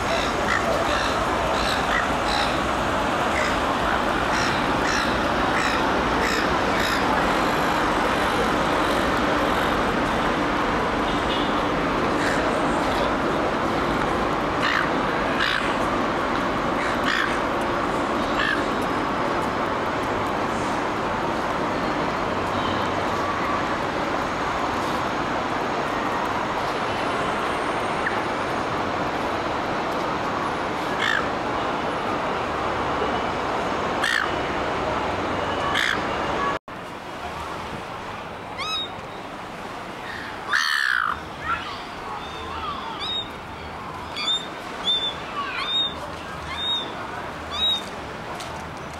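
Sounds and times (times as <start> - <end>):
gulls calling harshly: 0.0 - 7.8, 40.0 - 43.4, 44.0 - 47.9
city traffic noise: 0.0 - 48.9.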